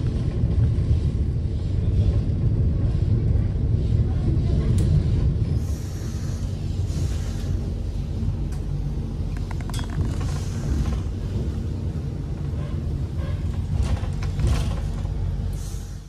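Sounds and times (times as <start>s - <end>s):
train rumble from inside coach: 0.0s - 16.0s
faint clicks and rattles: 9.3s - 11.1s.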